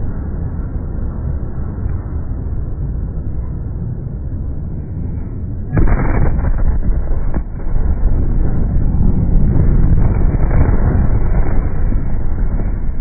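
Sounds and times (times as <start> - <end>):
loud rumbling: 0.0 - 13.0
loud explosion blast: 5.7 - 13.0.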